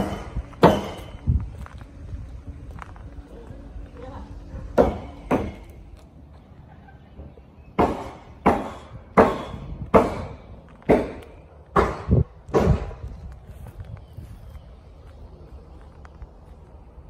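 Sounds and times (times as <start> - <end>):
footsteps walking: 0.0 - 6.5, 10.6 - 17.0.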